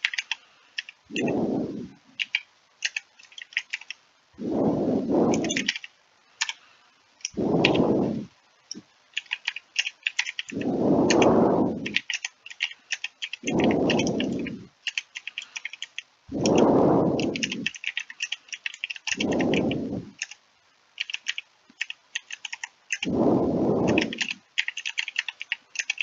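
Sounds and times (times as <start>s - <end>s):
low rushes of noise: 1.1s - 2.1s, 4.4s - 5.7s, 7.3s - 8.8s, 10.5s - 11.9s, 13.4s - 14.7s, 16.3s - 17.7s, 19.2s - 20.2s, 23.0s - 24.4s.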